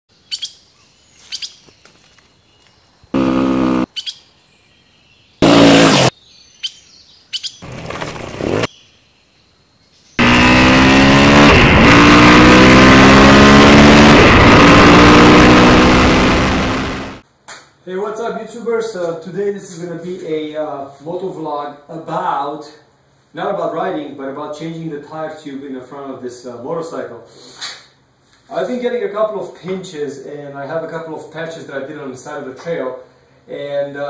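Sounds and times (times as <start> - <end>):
birds chirping: 0.1 - 3.2, 3.8 - 11.0
engine revving: 3.2 - 3.9, 5.4 - 6.1, 7.6 - 8.7, 10.2 - 17.2.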